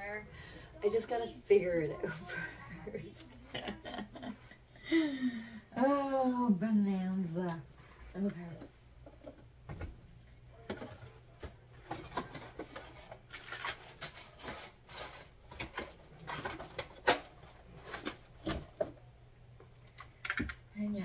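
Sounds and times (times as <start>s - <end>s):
clothes and plastic rustling: 5.8s - 21.0s.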